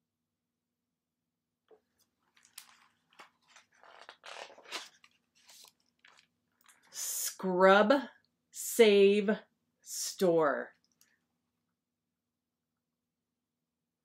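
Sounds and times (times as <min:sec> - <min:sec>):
book page rustling: 0:01.8 - 0:06.4.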